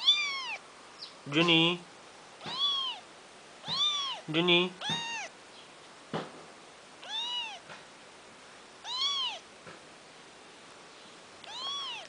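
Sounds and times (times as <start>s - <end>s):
kitten meowing: 0.0s - 0.6s, 2.4s - 5.3s, 7.0s - 7.7s, 8.8s - 9.5s, 11.4s - 12.0s.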